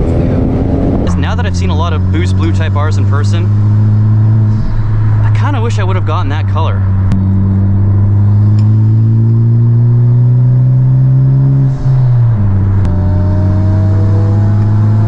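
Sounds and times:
car engine accelerating: 0.0 - 15.0.

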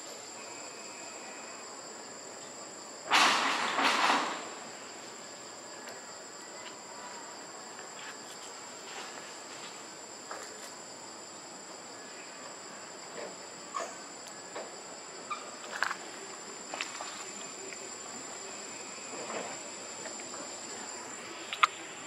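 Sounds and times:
insect chorus drone: 0.0 - 22.0
faint clicks: 21.5 - 21.8.

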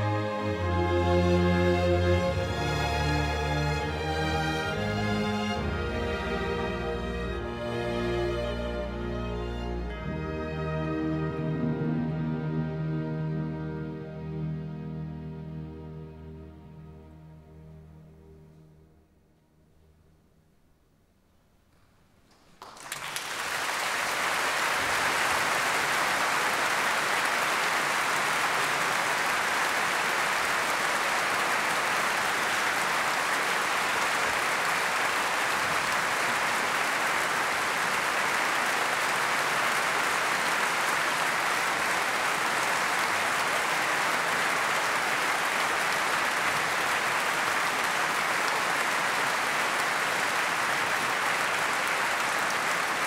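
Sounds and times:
audience applauding: 22.3 - 53.0.

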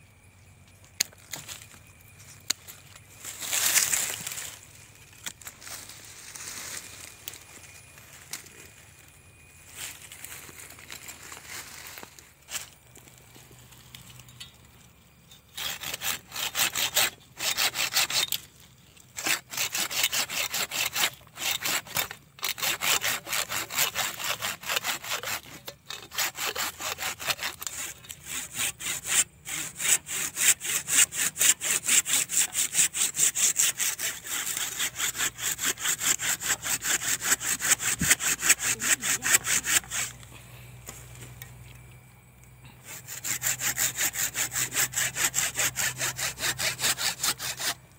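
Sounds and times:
hand saw cutting branch: 2.5 - 7.5, 15.5 - 40.3, 42.8 - 47.8.

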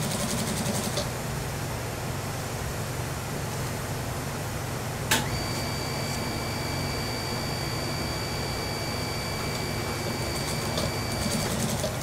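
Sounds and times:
steady high whine: 5.1 - 11.6
sewing machine stitching: 10.1 - 12.0.

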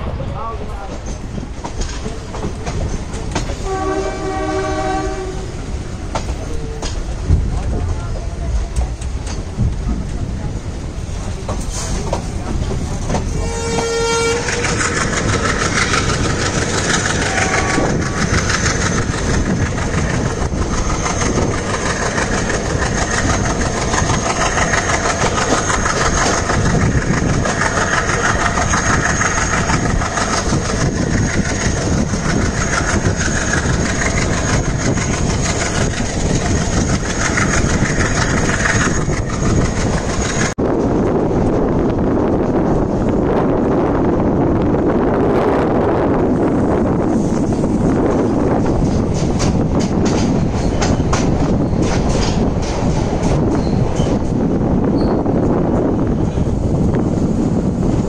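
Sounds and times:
train wheels rumbling on rail: 0.0 - 58.0
locomotive horn blast: 3.6 - 5.5, 13.3 - 14.7, 17.3 - 17.9.

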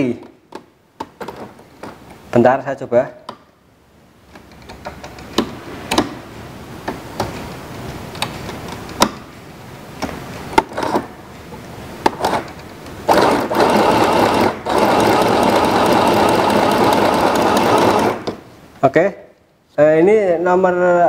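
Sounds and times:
sharp clicks and knocks: 4.3 - 6.2, 6.8 - 9.3
sewing machine stitching: 10.6 - 11.1, 12.1 - 18.4.

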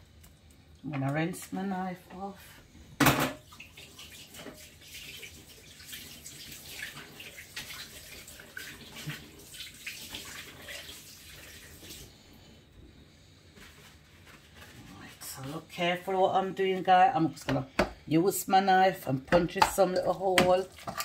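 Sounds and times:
kitchen tap running: 3.0 - 12.1.

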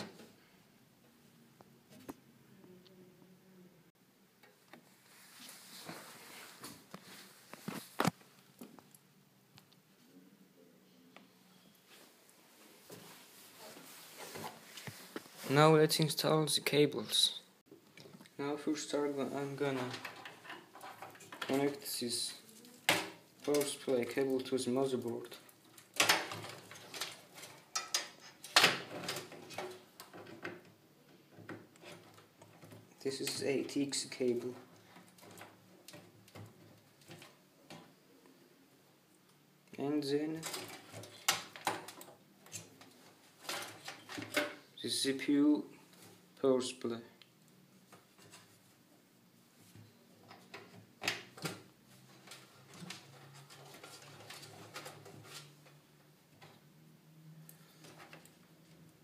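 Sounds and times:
cable rustling: 4.7 - 9.7, 17.9 - 38.0, 40.3 - 44.6, 49.6 - 56.6.

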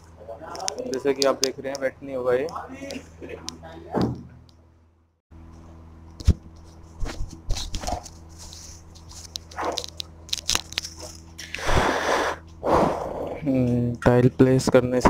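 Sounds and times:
sharp ticks: 0.6 - 3.0.

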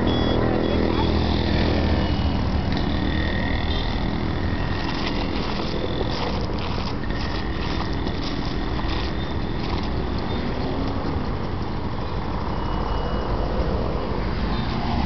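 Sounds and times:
passing vehicle engine rumble: 0.0 - 15.0
footsteps on loose stone chippings: 4.8 - 11.7.

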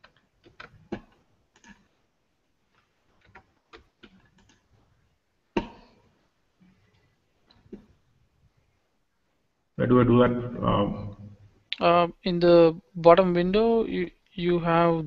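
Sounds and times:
keyboard keystrokes and clicks: 0.0 - 1.9, 3.2 - 4.7.

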